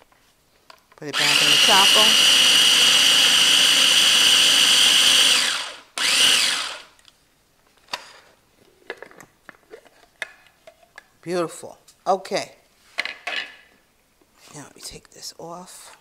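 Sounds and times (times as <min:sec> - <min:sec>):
food chopper whining: 0:01.1 - 0:07.0.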